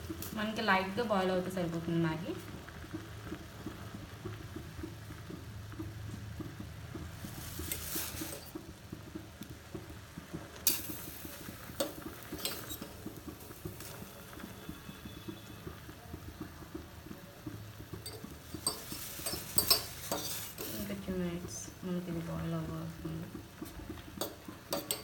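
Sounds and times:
water bubbling in a pan: 0.0s - 25.0s
spoon clinking against pan: 18.0s - 20.8s, 24.2s - 25.0s.

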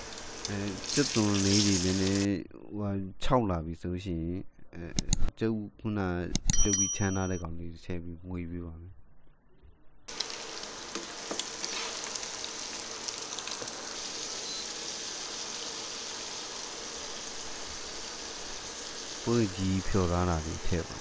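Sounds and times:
food sizzling in hot oil: 0.0s - 2.3s, 10.1s - 21.0s.

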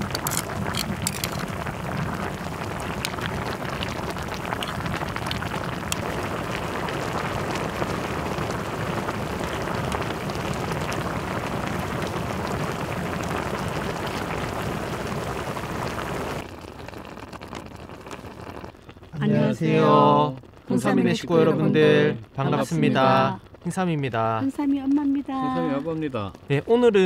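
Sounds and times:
broth boiling and bubbling: 0.0s - 27.0s.

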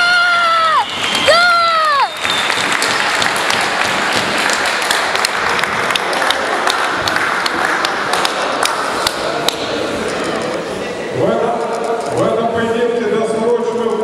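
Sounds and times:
crowd applauding: 0.1s - 9.7s.

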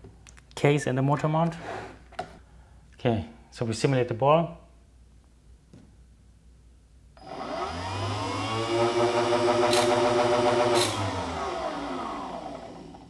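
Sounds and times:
motors whining: 7.2s - 13.0s.

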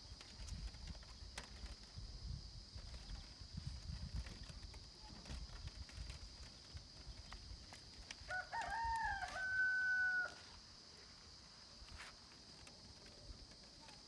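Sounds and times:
rooster crowing: 8.3s - 10.5s.

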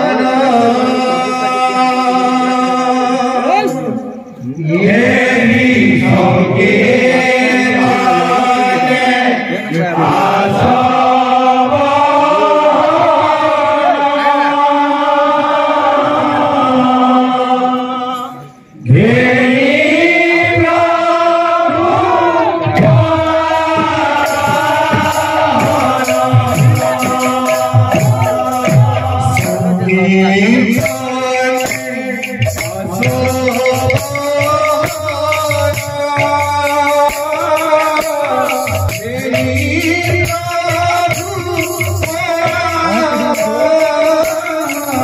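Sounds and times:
men chanting through microphone: 0.0s - 45.0s
rattling cymbals: 23.6s - 45.0s.

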